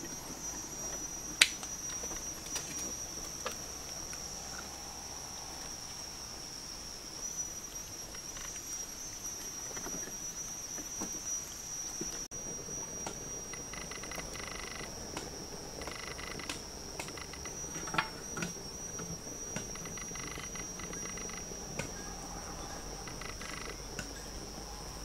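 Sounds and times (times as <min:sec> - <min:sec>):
high-pitched insect chorus: 0:00.0 - 0:25.0
faint ticks: 0:13.0 - 0:24.2.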